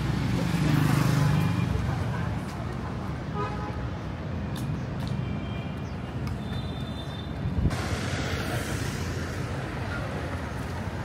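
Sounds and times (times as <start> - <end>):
low rumble of vehicles: 0.0 - 11.0
sudden hiss: 7.7 - 10.3.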